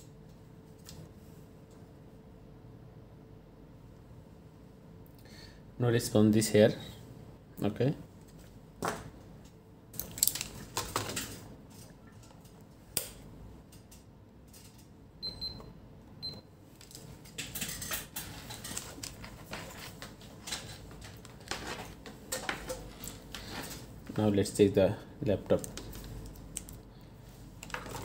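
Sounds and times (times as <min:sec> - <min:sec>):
clicks and rustling of handling: 0:08.2 - 0:15.0, 0:16.8 - 0:24.2, 0:25.5 - 0:26.8, 0:27.6 - 0:28.0
multimeter beeps: 0:15.2 - 0:16.5.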